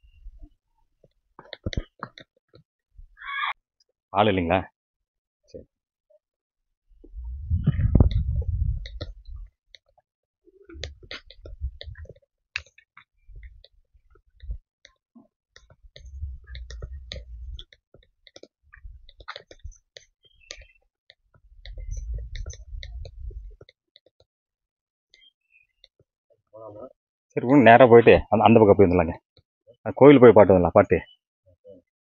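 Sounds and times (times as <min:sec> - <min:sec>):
low rumbling on microphone: 0:07.0 - 0:09.5, 0:10.8 - 0:12.1, 0:16.0 - 0:17.6, 0:21.6 - 0:23.6.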